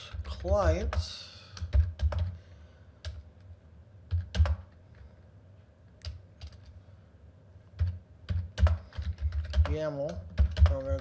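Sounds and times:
keyboard keystrokes: 1.6 - 2.4, 4.1 - 4.8, 7.8 - 11.0.

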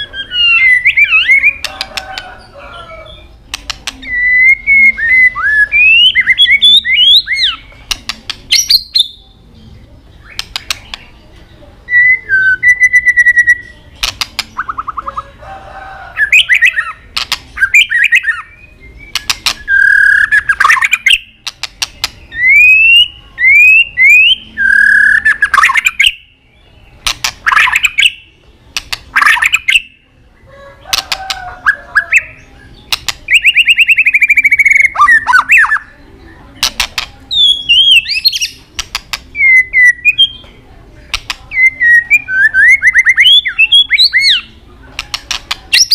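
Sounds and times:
bird whistling song: 0.0 - 1.8, 3.9 - 7.7, 8.5 - 9.2, 11.9 - 13.8, 16.2 - 17.0, 17.6 - 21.4, 22.0 - 26.4, 27.4 - 28.3, 29.1 - 30.0, 31.6 - 35.9, 37.3 - 38.6, 39.4 - 40.5, 41.5 - 44.5
harsh clicking bird calls: 0.0 - 9.1, 10.2 - 11.5, 13.0 - 15.2, 16.2 - 30.0, 30.8 - 35.9, 36.6 - 45.9.

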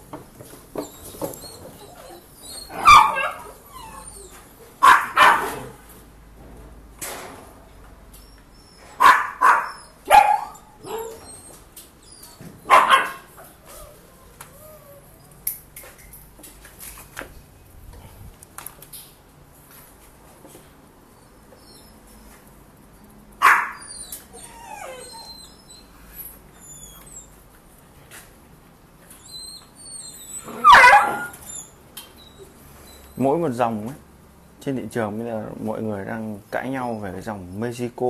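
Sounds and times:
dog barking: 2.7 - 3.5, 4.8 - 5.8, 9.0 - 11.2, 12.7 - 13.3, 23.4 - 23.8, 30.6 - 31.3.

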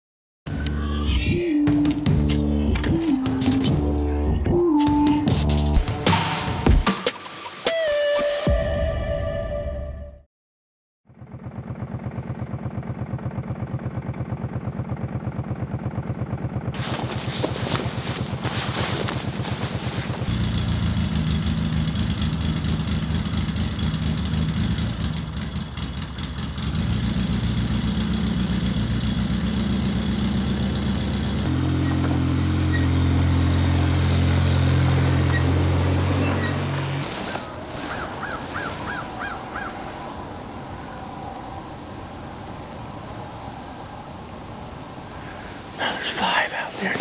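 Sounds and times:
quad engine idling and driving off: 11.1 - 41.1.

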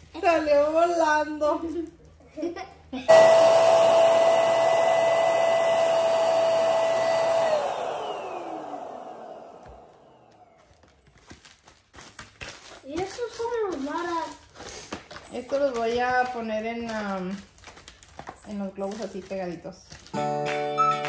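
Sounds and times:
electric balloon pump whining: 3.1 - 10.6.

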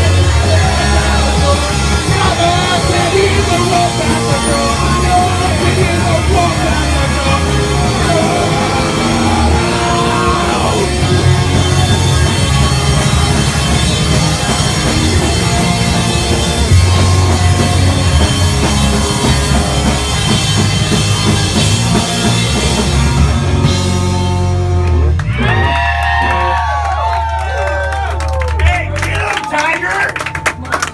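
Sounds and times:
drum kit: 0.0 - 29.1
punk rock band playing: 0.0 - 30.9
people shouting: 8.4 - 12.4.

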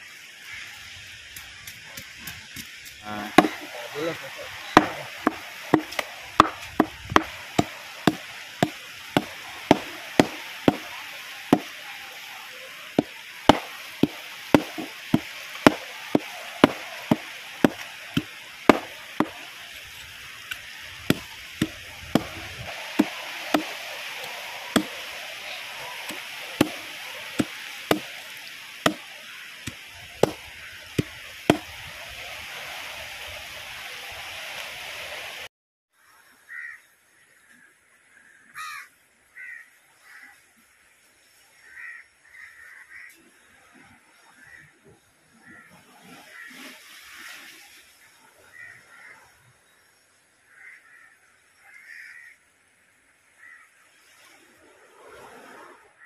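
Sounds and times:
meat cleaver chopping fish on wood: 3.4 - 3.7, 4.8 - 10.9, 13.0 - 19.4, 21.1 - 22.4, 23.0 - 23.7, 24.8 - 25.0, 26.1 - 28.1, 29.7 - 30.4, 31.0 - 31.7.

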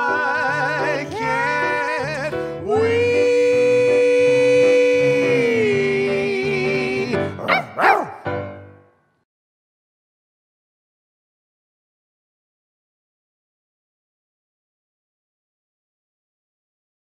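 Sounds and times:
man and woman singing harmony: 0.0 - 7.6
grand piano: 0.0 - 9.2
bark-like yelps: 7.4 - 8.3.

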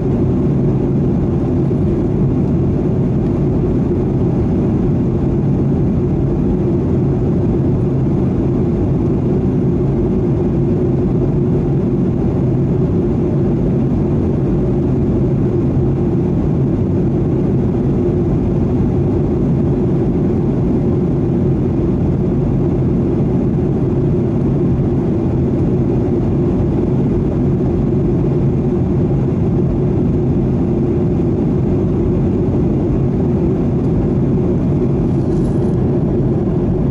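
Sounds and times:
airplane engines humming: 0.0 - 36.9
airflow rushing: 28.2 - 36.9.

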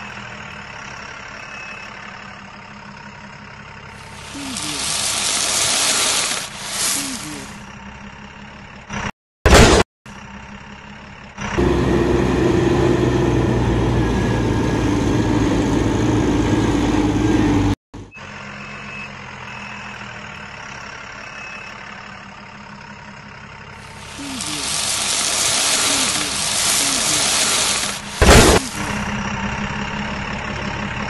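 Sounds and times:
high reversing beeps: 0.0 - 2.1, 18.1 - 21.9
truck engine running: 0.0 - 31.0.

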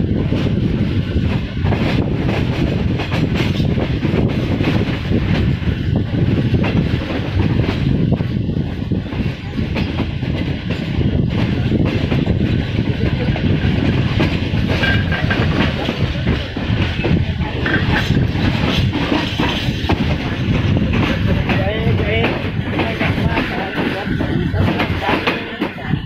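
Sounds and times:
train wheels rumbling on rail: 0.0 - 26.0
wheels clattering over rail joints: 9.2 - 25.8.

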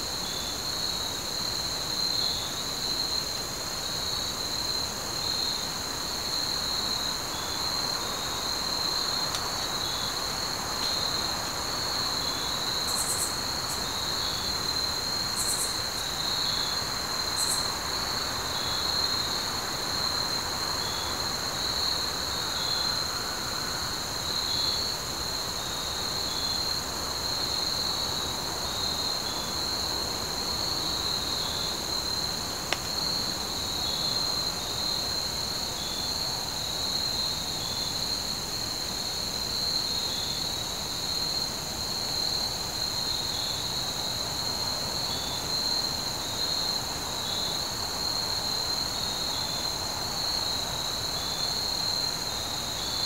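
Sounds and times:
faint insect chirp: 0.0 - 53.0
insect trill: 0.0 - 53.0
faint click: 9.3 - 9.5, 32.7 - 33.0.

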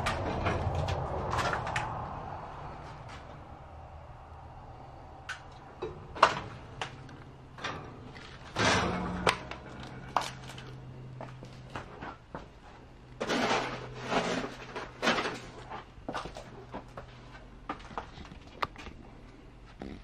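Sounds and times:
sharp clicks and knocks: 0.0 - 2.1
faint low hum: 0.0 - 20.0.

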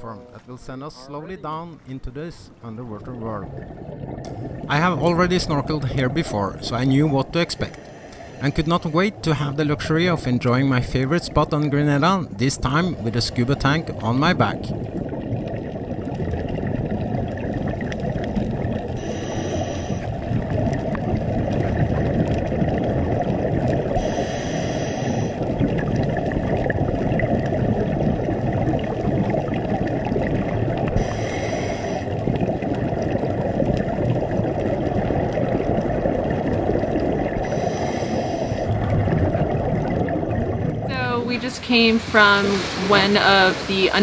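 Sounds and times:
muffled underwater rumble: 0.0 - 44.0
diver breathing through regulator: 7.8 - 8.6, 19.0 - 20.2, 24.0 - 25.5, 30.9 - 32.3, 37.4 - 38.8.

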